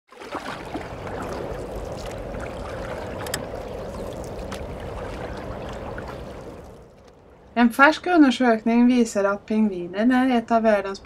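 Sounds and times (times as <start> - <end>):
water sloshing: 0.1 - 7.5.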